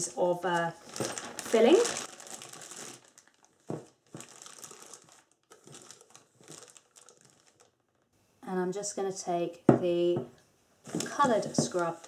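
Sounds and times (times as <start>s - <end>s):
plastic piping bag crinkling: 0.0s - 8.1s, 10.9s - 12.0s.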